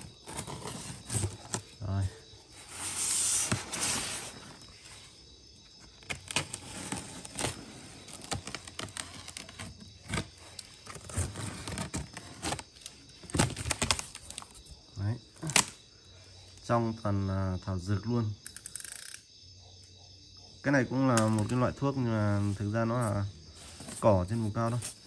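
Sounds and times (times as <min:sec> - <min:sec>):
cardboard box being opened: 0:00.0 - 0:01.8, 0:06.1 - 0:14.5
dried grass packing rustling: 0:22.2 - 0:25.0.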